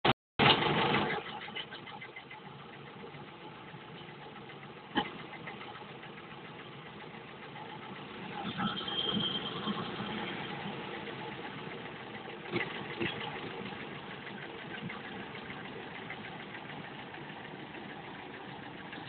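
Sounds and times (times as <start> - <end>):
tractor diesel engine running: 0.4 - 19.0
high whine: 7.6 - 12.3.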